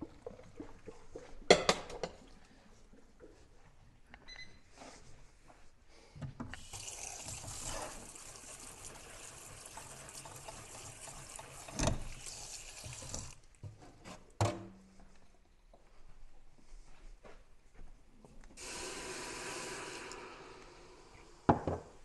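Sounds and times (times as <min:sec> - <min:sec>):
tap water pouring into colander: 0:06.6 - 0:13.5, 0:18.6 - 0:21.6
knock: 0:21.5 - 0:21.9.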